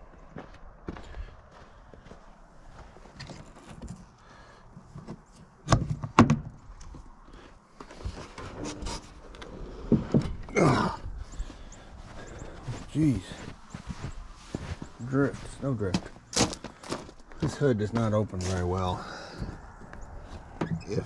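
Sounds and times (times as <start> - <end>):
footsteps in snow: 0.0 - 3.8, 11.0 - 20.6.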